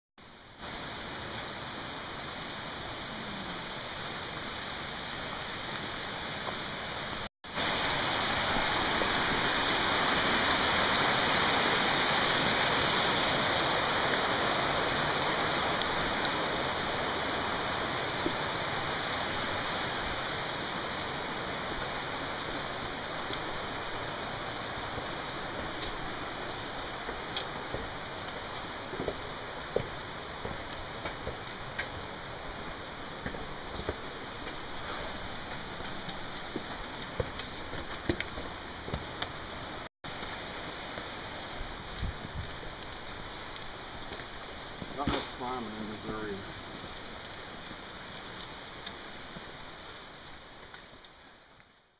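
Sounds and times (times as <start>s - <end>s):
mountain stream rushing: 0.2s - 51.9s.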